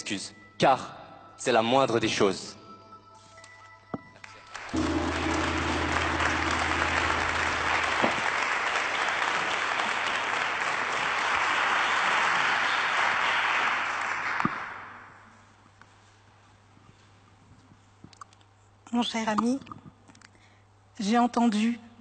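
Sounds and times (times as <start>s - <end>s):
audience applauding in a hall: 4.2s - 15.2s
low steady tone: 4.8s - 8.4s.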